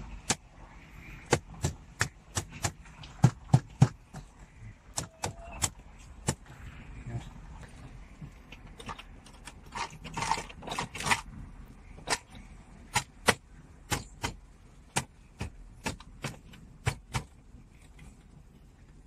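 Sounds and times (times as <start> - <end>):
plastic scraping and rattling: 8.3 - 13.2.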